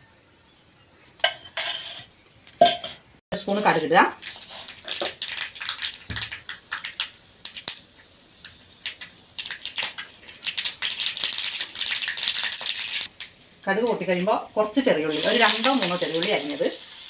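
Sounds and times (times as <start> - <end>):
mustard seeds popping in oil: 3.4 - 14.3, 15.1 - 17.0.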